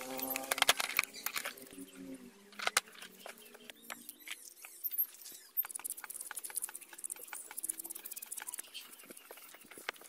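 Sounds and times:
metal parts clinking: 0:00.0 - 0:01.7.

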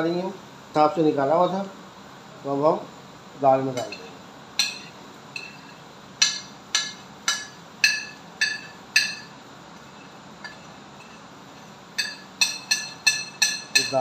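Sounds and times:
metal spoon tapping ceramic plate: 0:06.2 - 0:09.3, 0:12.0 - 0:14.0.

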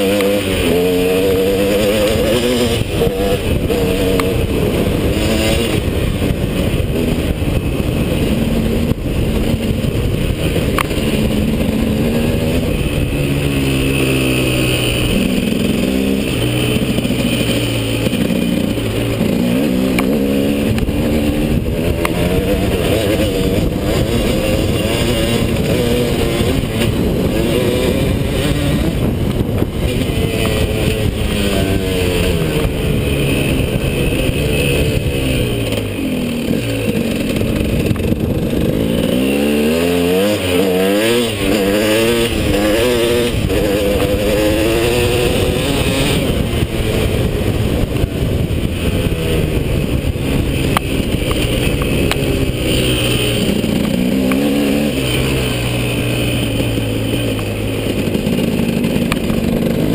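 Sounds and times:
motocross engine revving: 0:00.0 - 0:59.9.

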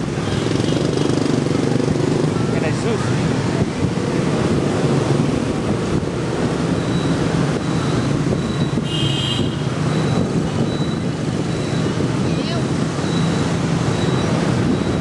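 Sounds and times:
motorbike engine hum: 0:00.0 - 0:15.0
road noise: 0:00.0 - 0:15.0
wind buffeting microphone: 0:00.0 - 0:15.0.

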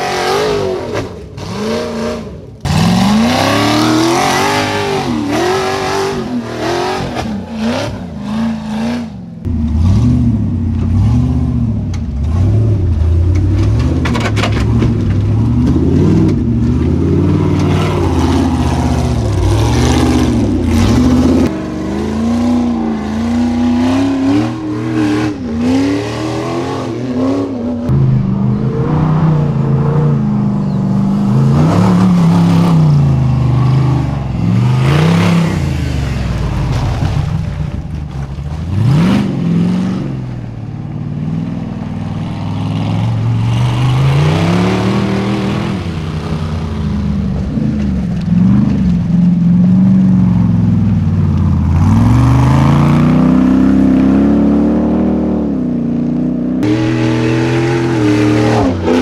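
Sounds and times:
off-road buggy engines revving: 0:00.0 - 0:59.0.

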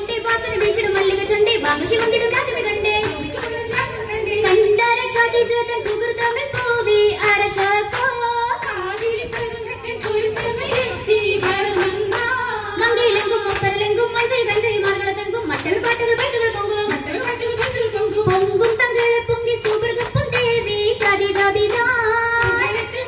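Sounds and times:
women singing: 0:00.0 - 0:23.0
hand claps: 0:00.1 - 0:23.0.

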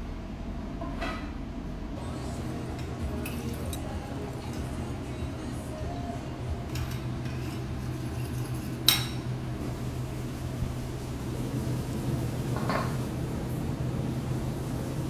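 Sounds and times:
steady low hum: 0:00.0 - 0:15.0
tableware clinking: 0:02.4 - 0:04.8, 0:06.6 - 0:09.3, 0:12.6 - 0:13.0.

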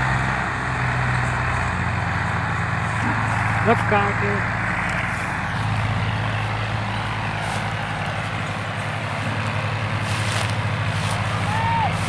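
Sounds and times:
diesel tractor engines chugging: 0:00.0 - 0:12.0.

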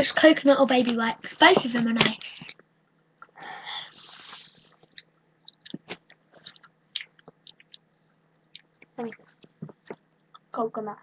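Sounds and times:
person chewing: 0:04.0 - 0:07.9, 0:08.5 - 0:10.5.

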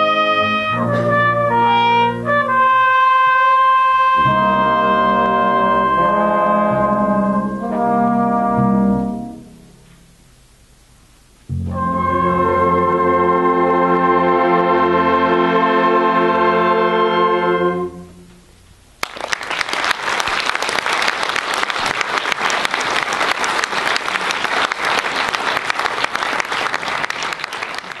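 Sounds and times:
wind band sustained chord: 0:00.0 - 0:09.8, 0:11.5 - 0:18.4
audience applause: 0:19.0 - 0:28.0.

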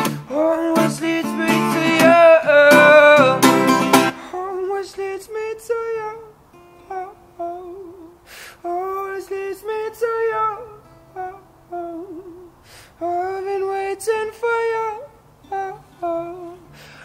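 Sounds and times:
acoustic guitar: 0:00.0 - 0:17.0
man singing wordless melody: 0:00.0 - 0:17.0
hissing breaths: 0:08.2 - 0:08.7, 0:12.6 - 0:13.0, 0:16.6 - 0:17.0.

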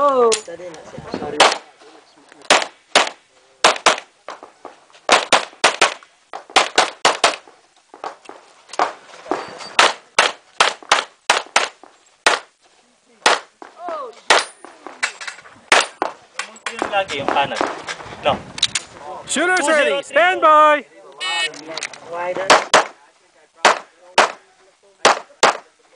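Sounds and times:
pistol shots: 0:02.5 - 0:04.1, 0:05.1 - 0:07.4.

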